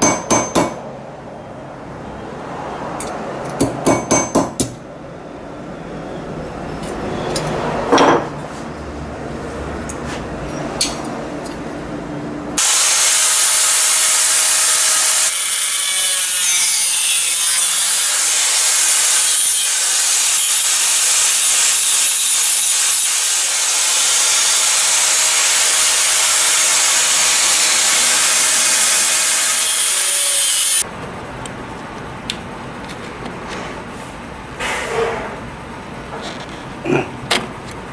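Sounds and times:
angle grinder grinding metal: 0:12.6 - 0:30.8.

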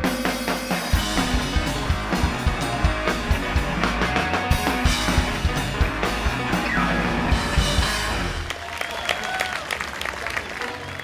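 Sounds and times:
electric guitar: 0:00.0 - 0:08.5
drum kit: 0:00.0 - 0:08.6.

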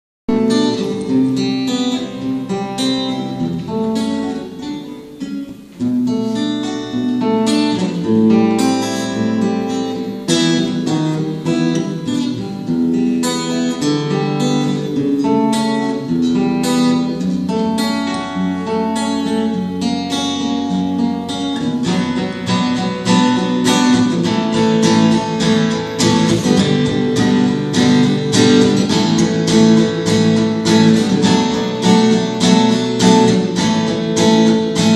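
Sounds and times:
acoustic guitars playing folk: 0:00.3 - 0:34.9.

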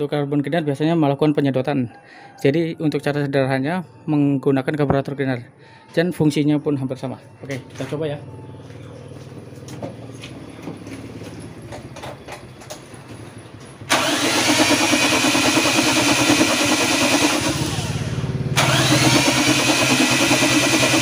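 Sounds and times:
car engine cranking on starter: 0:11.7 - 0:21.0.

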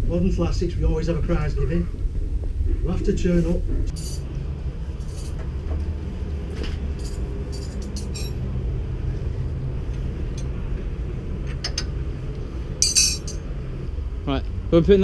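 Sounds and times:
engine running low rumble: 0:00.0 - 0:15.0
metallic clinks of tools: 0:12.8 - 0:13.4.

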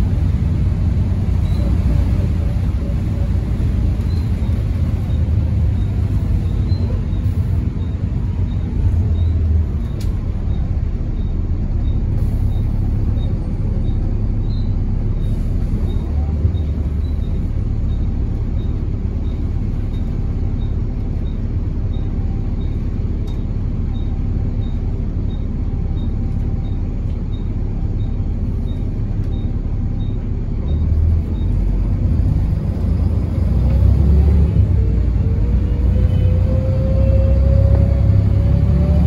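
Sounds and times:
bus engine and road rumble: 0:00.0 - 0:39.0.

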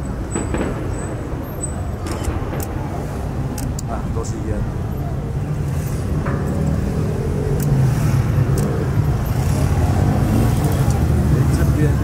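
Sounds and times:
distant fireworks rumble: 0:00.0 - 0:12.0
faint firework cracks: 0:00.3 - 0:03.1.

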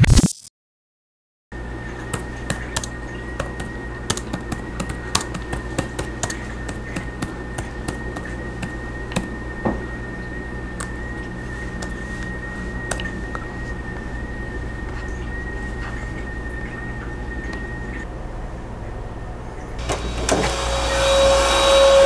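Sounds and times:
room hum: 0:01.6 - 0:22.0.

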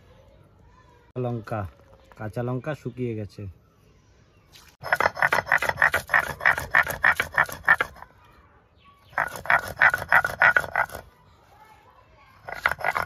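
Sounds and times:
stone roller grinding paste on slab: 0:12.4 - 0:13.0.

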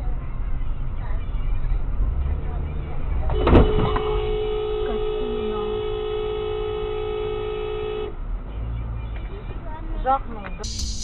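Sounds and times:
vehicle collision impact: 0:03.3 - 0:04.2.

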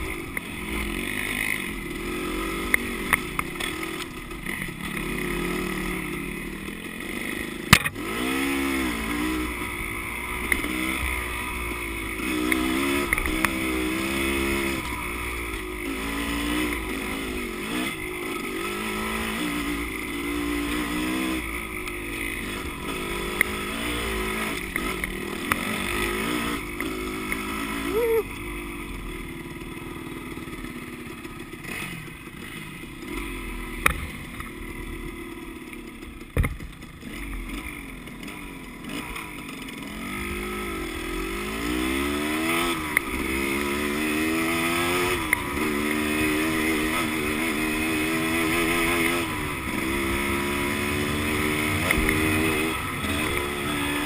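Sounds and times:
dirt bike engine revving: 0:00.0 - 0:54.0
sharp knocks and clicks: 0:36.4 - 0:36.8.

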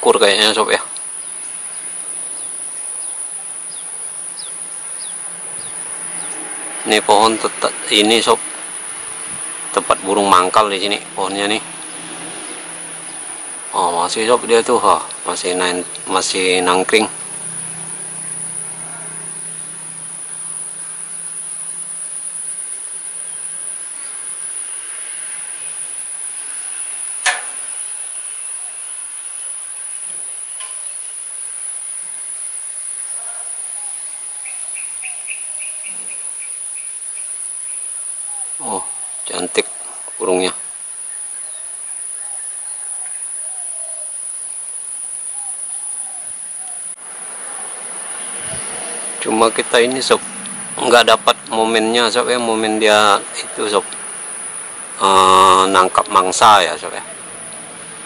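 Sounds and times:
insects trilling: 0:00.0 - 0:58.0
sharp click: 0:27.2 - 0:27.6.

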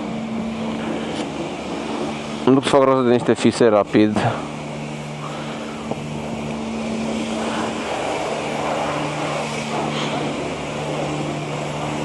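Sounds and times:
high-pressure pump humming: 0:00.0 - 0:12.0
spray lance hissing: 0:04.5 - 0:12.0.

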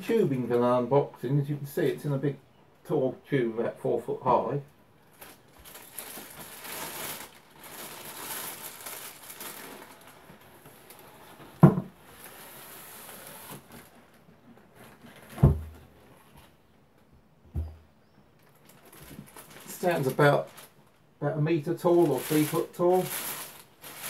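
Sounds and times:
plastic wrapping rustling: 0:05.0 - 0:16.6, 0:18.4 - 0:24.0.

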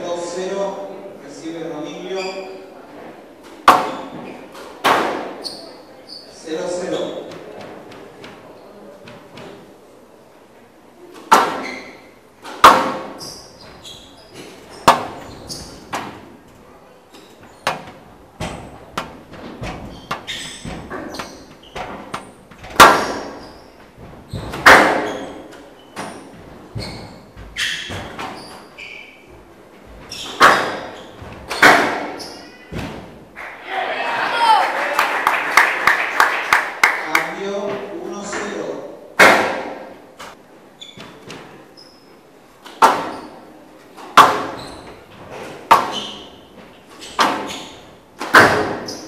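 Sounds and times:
shoes squeaking on court floor: 0:02.0 - 0:02.8, 0:03.4 - 0:09.6, 0:11.1 - 0:16.3, 0:17.0 - 0:33.2, 0:40.2 - 0:48.1, 0:48.7 - 0:49.0
squash ball smacks echoing: 0:03.5 - 0:05.4, 0:11.2 - 0:13.2, 0:14.8 - 0:16.3, 0:17.6 - 0:23.5, 0:24.4 - 0:25.5, 0:30.4 - 0:33.2, 0:39.2 - 0:40.0, 0:42.6 - 0:43.4, 0:44.0 - 0:44.6, 0:45.6 - 0:46.3, 0:47.2 - 0:47.6, 0:48.2 - 0:49.0.

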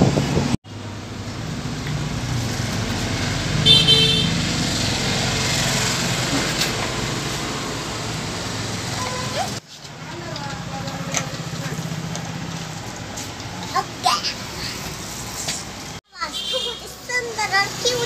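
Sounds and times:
road traffic rumble: 0:00.0 - 0:18.0
vehicle horn toot: 0:03.6 - 0:04.4, 0:16.2 - 0:16.9.

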